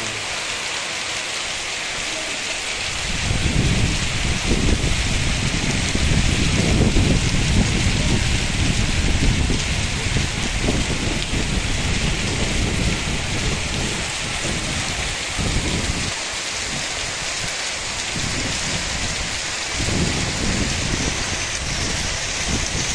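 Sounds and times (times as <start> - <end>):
hail and heavy rain pelting: 0.0 - 22.9.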